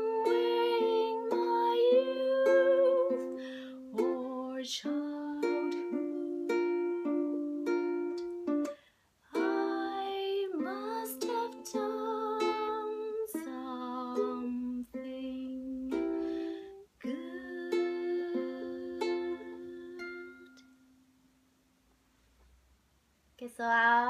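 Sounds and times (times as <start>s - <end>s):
woman singing: 0.0s - 7.5s, 9.3s - 20.6s
ukulele strumming chords: 0.0s - 21.2s.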